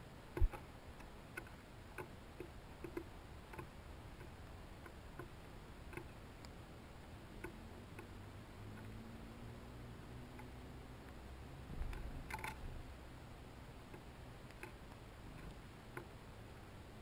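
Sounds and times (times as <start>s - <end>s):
birds pecking on wooden feeder: 0.3s - 9.0s, 10.0s - 16.7s.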